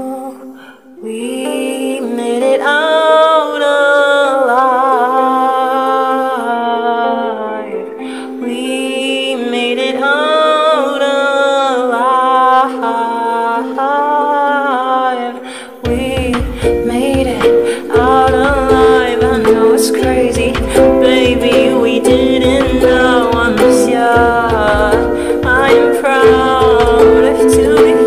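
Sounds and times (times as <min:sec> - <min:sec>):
ukulele accompaniment: 0:00.0 - 0:28.0
man's wordless singing: 0:08.4 - 0:28.0.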